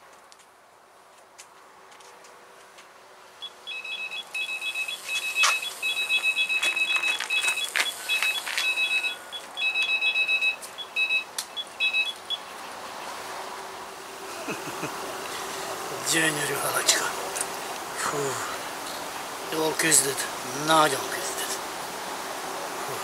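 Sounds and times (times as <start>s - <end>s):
electronic bite alarm beeping: 3.4s - 12.5s.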